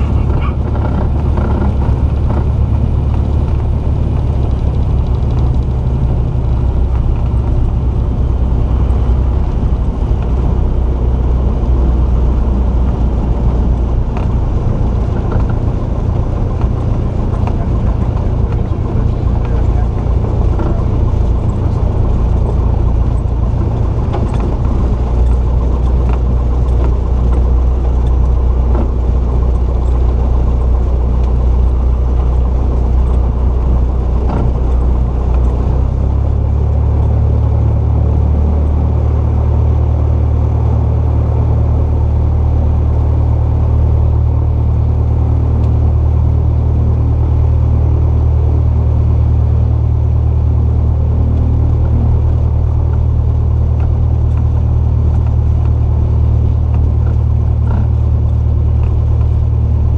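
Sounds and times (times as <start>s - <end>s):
aircraft engine and propeller drone: 0.0s - 59.9s.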